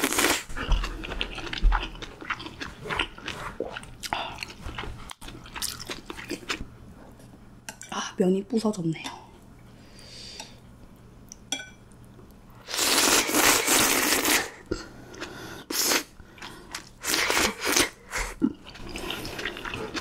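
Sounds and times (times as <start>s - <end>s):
wet chewing: 0.1s - 6.6s, 16.3s - 20.0s
slurping noodles: 12.6s - 14.6s.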